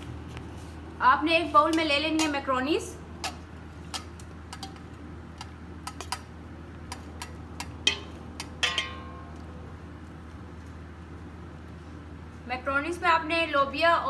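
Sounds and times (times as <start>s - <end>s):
ringing knocks: 7.9s - 9.4s.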